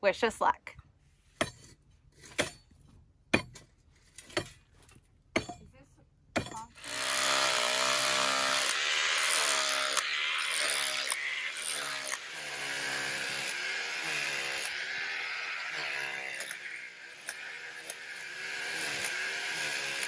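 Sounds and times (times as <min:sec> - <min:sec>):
demolition hammer chiselling rock: 0:03.3 - 0:03.7, 0:05.3 - 0:05.7, 0:06.3 - 0:20.0
pickaxe striking rocky ground: 0:03.3 - 0:04.6, 0:05.4 - 0:05.7, 0:06.4 - 0:06.6.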